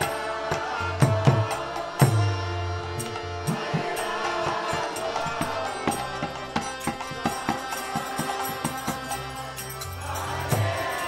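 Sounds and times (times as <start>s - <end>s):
jingling percussion: 0.0s - 11.0s
voices chanting together: 0.0s - 11.0s.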